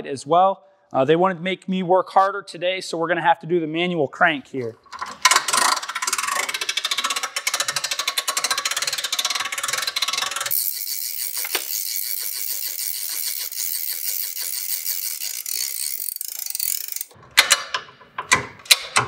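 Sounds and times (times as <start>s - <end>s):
winch ratchet clicking: 4.9s - 17.8s.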